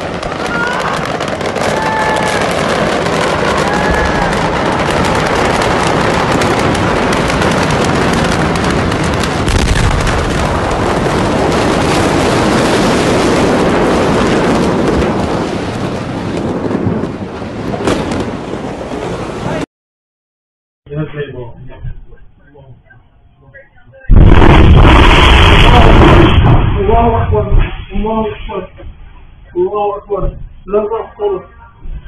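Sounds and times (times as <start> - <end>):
explosion roar with crackling: 0.0 - 19.7, 24.1 - 29.1.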